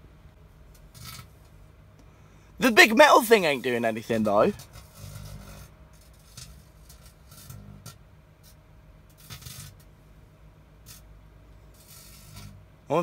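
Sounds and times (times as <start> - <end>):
crackling electrical arcing: 2.7 - 9.9, 10.8 - 11.1, 11.7 - 12.6
microwave oven humming: 7.2 - 9.1.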